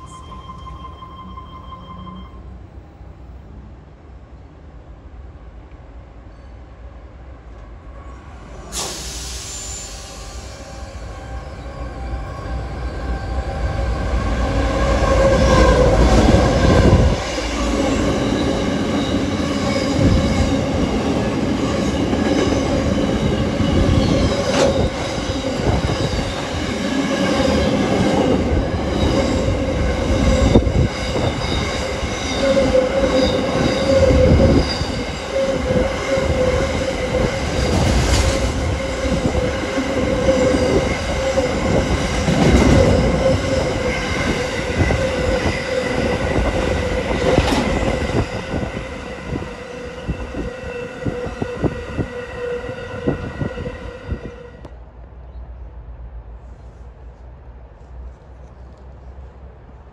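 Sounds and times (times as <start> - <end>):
train wheels squealing: 0.0 - 2.6, 6.3 - 6.6, 7.9 - 13.7, 21.7 - 28.3, 28.9 - 54.5
freight train rumbling past: 0.0 - 59.9.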